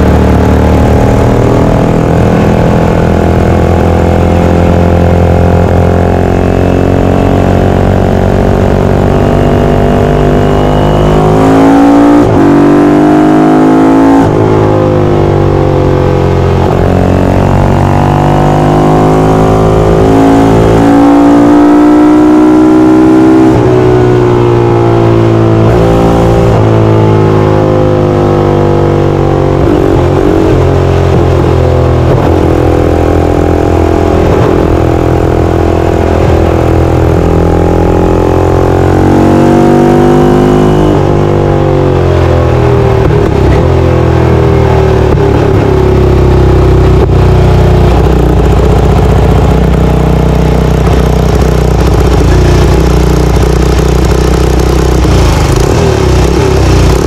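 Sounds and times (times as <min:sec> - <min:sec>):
racing engine accelerating: 0:00.0 - 0:57.0.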